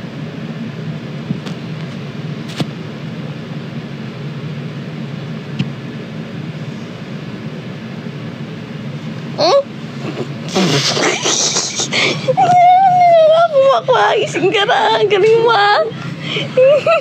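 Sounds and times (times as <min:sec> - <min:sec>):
even hiss: 0:10.0 - 0:12.0.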